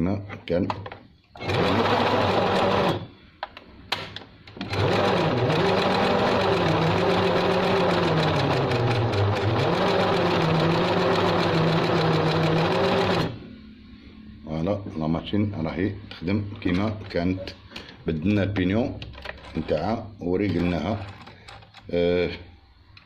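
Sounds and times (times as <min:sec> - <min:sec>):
sewing machine stitching: 0:01.4 - 0:03.1, 0:04.6 - 0:13.4.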